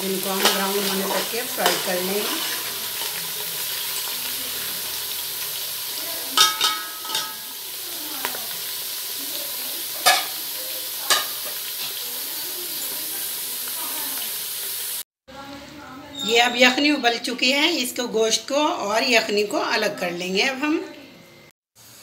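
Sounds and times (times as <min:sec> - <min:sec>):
onions sizzling in hot oil: 0:00.0 - 0:15.1, 0:21.7 - 0:22.0
spoon clinking against pot: 0:06.4 - 0:07.4.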